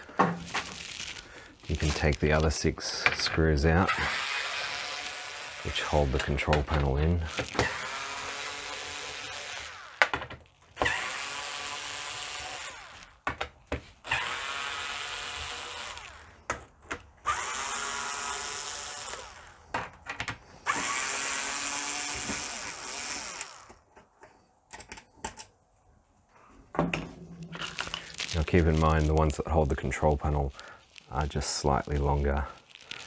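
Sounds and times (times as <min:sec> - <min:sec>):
electric screwdriver whirring: 0:03.9 - 0:06.1, 0:07.2 - 0:10.2, 0:10.8 - 0:13.2, 0:14.0 - 0:16.4, 0:17.2 - 0:19.7, 0:20.6 - 0:23.8
clicks and knocks of screws: 0:23.3 - 0:25.6.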